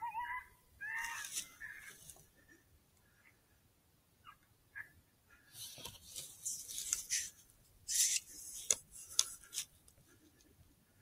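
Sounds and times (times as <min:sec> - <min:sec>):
faint scratchy rustling: 0:05.4 - 0:10.6.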